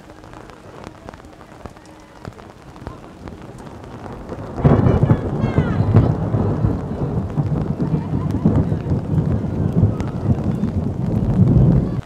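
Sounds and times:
raindrops ticking: 0.0 - 12.0
loud low rumble: 3.2 - 12.0.

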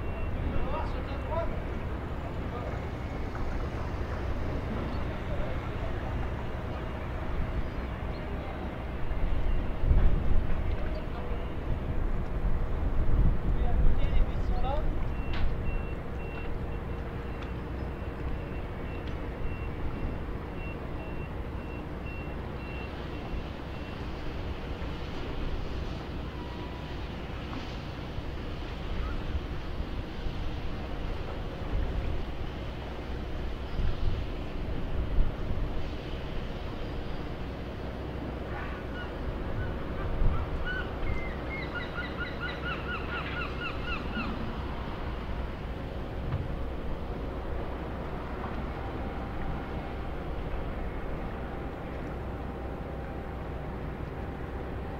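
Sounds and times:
vehicle reversing alarm beeping: 0.0 - 1.5, 9.0 - 9.9, 15.1 - 24.8
low engine rumble: 0.0 - 54.9
gull calling: 38.7 - 44.5.

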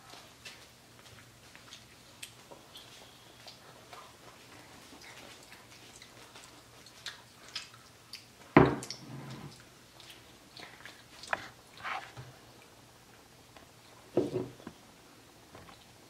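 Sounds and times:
wet chewing and mouth clicks: 0.1 - 12.7.

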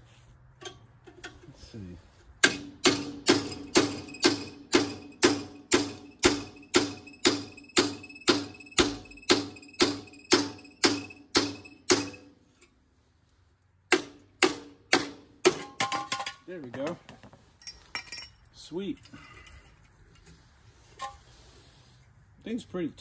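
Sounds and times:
hammer striking chisel on metal: 2.4 - 12.3, 13.9 - 16.3.

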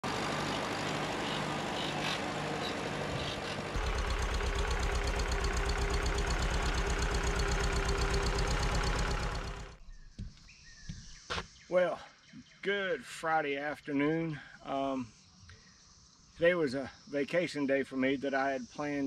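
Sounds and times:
tractor engine running: 0.0 - 9.8.

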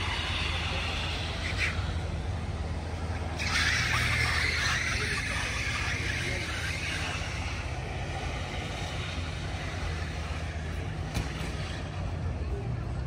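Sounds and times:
road noise hiss: 0.0 - 13.0
vehicle engine rumbling: 0.0 - 13.0.

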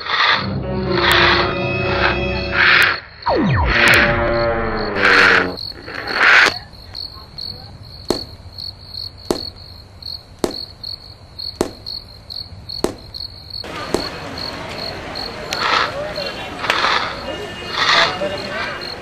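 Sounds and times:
crickets chirping: 0.0 - 19.0
sharp knocks: 8.1 - 8.3, 9.3 - 9.6, 10.4 - 10.7, 11.6 - 12.0, 12.8 - 13.2.

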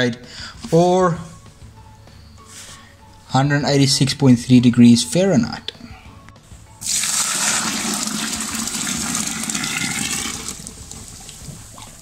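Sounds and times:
water pouring into a bucket: 6.8 - 12.0.

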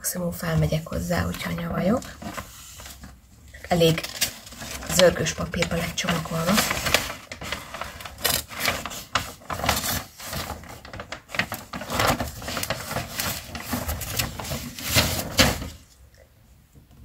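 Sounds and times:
packing paper rustling and tearing: 0.8 - 15.9.

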